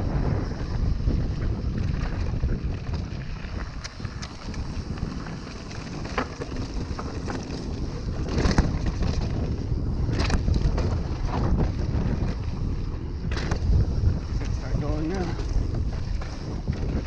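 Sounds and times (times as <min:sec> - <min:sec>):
bike clicks and rattles: 0:00.0 - 0:17.0
bike tyres rumbling on dirt: 0:00.0 - 0:17.0
wind buffeting microphone: 0:00.0 - 0:17.0
bike clattering over rocks: 0:01.8 - 0:12.6, 0:13.2 - 0:13.8.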